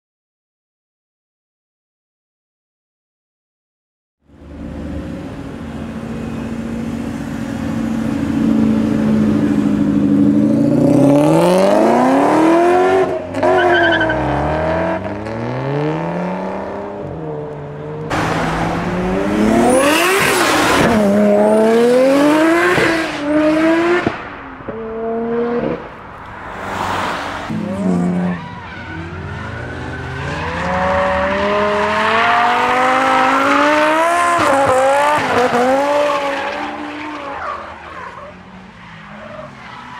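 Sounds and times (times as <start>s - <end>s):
car engines revving hard: 4.4s - 39.9s
tyre squeal: 13.4s - 14.2s, 27.7s - 30.6s.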